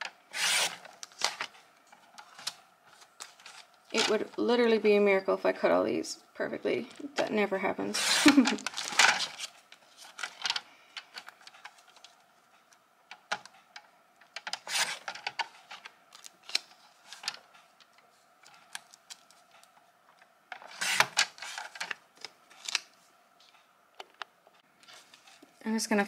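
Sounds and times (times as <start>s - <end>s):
paper rustling: 8.2s - 12.2s.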